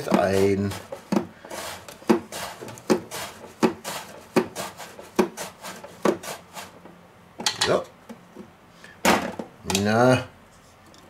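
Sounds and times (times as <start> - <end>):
potato scraping across slicer: 0.0 - 6.9.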